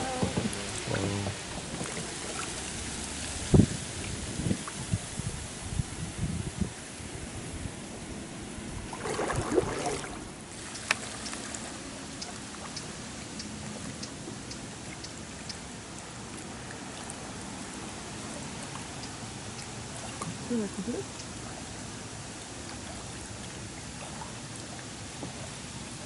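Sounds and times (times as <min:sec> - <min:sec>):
paddles splashing and dripping: 0:00.0 - 0:05.0, 0:08.8 - 0:26.0
river water washing: 0:00.0 - 0:26.0
light ticks: 0:10.7 - 0:16.1.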